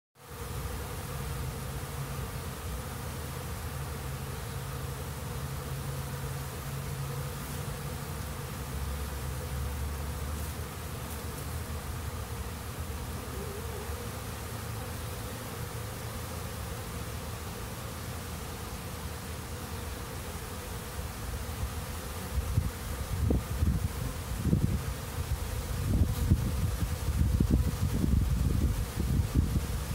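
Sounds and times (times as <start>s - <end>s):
bees buzzing: 0.2s - 29.9s.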